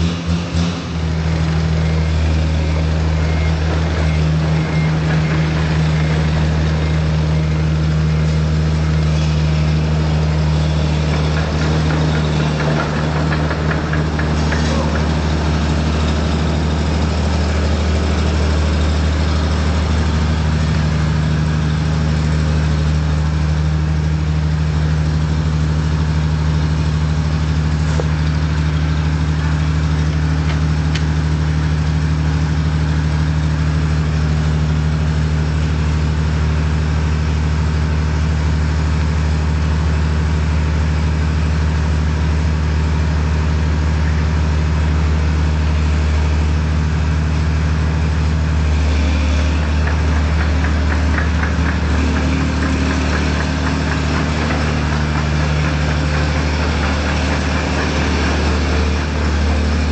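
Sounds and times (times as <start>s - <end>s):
combine harvester engine idling: 0.0s - 59.9s.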